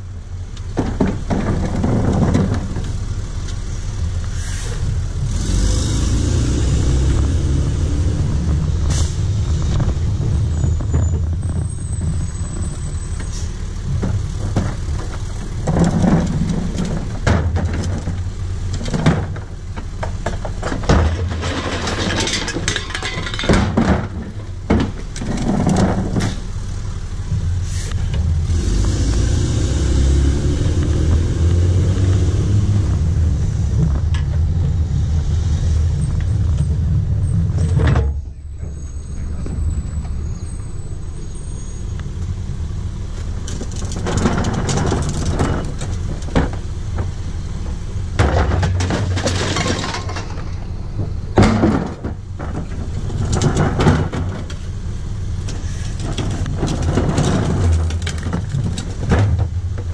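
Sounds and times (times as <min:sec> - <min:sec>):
garbage truck engine running: 0:00.0 - 0:59.9
recyclables clattering into hopper: 0:20.0 - 0:26.4, 0:48.2 - 0:50.6.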